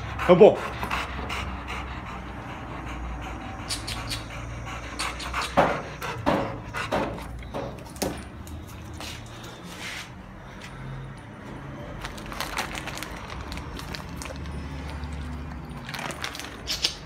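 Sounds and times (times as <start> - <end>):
dog huffing: 0.0 - 7.8
dogs panting: 0.0 - 16.7.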